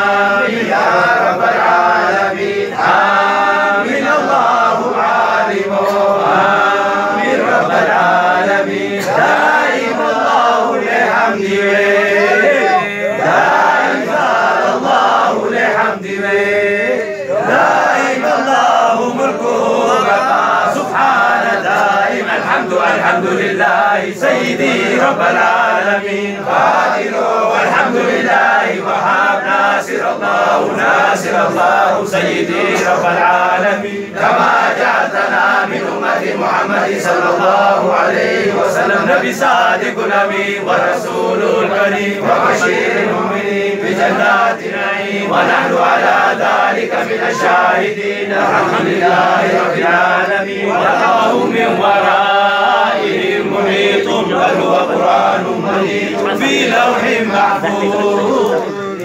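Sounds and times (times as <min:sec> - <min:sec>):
men chanting in unison: 0:00.0 - 0:59.0.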